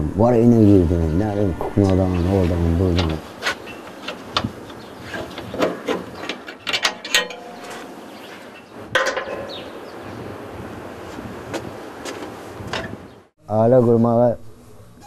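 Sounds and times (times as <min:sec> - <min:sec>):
scraping clank of metal: 0:05.0 - 0:09.7.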